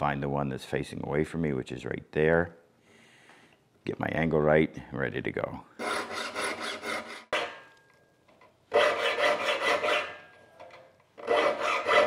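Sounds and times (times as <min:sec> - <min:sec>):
file rasping on saw teeth: 0:05.8 - 0:07.3, 0:08.7 - 0:10.2, 0:11.2 - 0:12.0.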